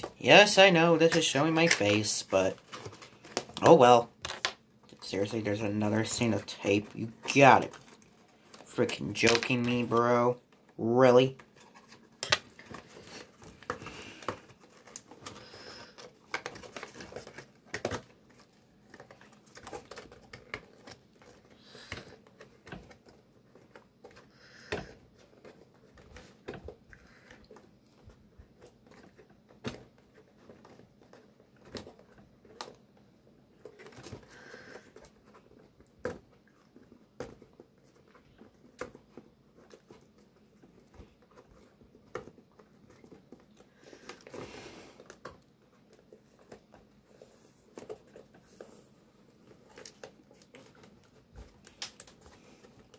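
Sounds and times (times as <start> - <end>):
packaging crinkling: 11.4 - 32.8, 33.5 - 52.9.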